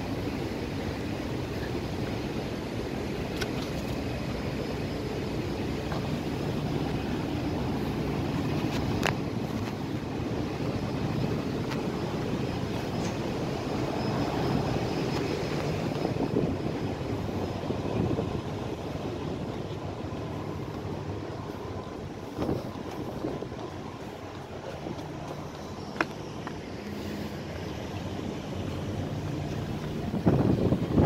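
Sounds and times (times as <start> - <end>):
faint steady hum: 0.0 - 31.0
ship machinery rumble: 0.0 - 31.0
wind on microphone: 6.1 - 25.0, 28.8 - 31.0.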